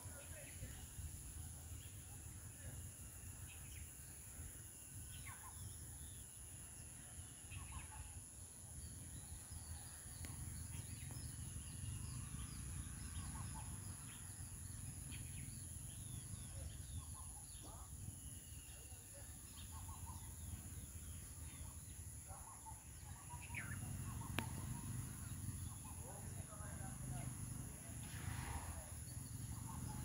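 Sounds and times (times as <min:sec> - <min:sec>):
bird chirps: 0:08.8 - 0:30.0.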